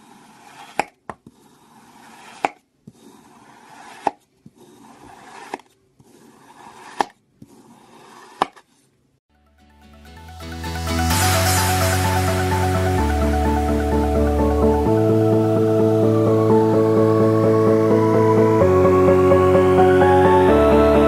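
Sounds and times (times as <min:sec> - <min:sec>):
knife slicing through sand: 0:00.0 - 0:08.6
background music: 0:09.3 - 0:21.0.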